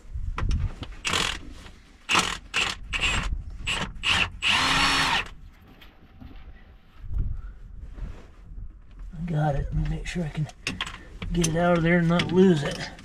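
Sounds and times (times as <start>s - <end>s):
cordless power tool spinning: 1.0s - 1.4s, 2.1s - 5.3s.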